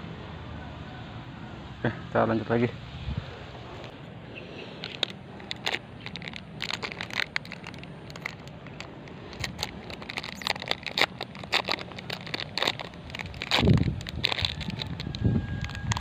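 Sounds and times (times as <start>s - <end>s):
plastic wrapper crinkling: 4.7s - 16.0s.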